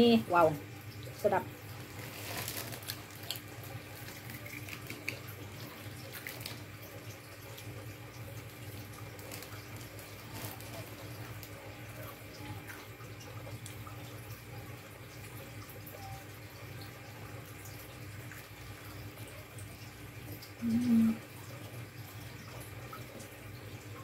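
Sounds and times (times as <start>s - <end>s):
person chewing: 1.9s - 5.2s.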